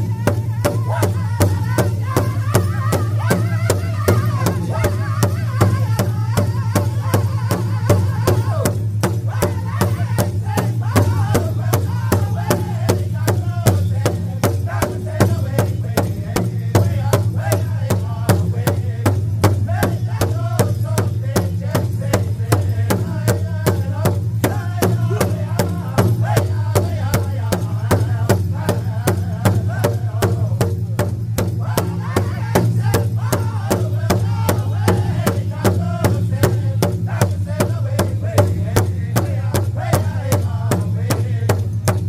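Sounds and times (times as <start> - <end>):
group singing together: 0.0 - 30.6, 31.5 - 41.7
big drum beating: 0.0 - 42.0.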